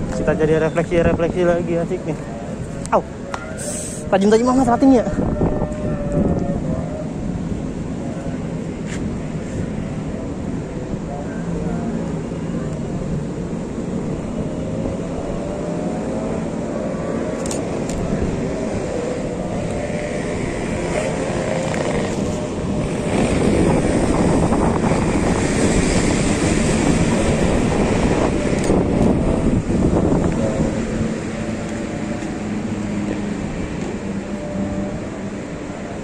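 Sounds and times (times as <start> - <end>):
road traffic hum: 0.0 - 36.0.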